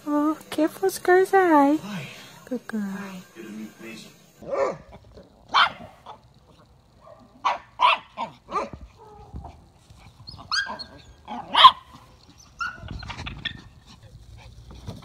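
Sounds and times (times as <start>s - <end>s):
small dog yapping: 4.4s - 13.8s.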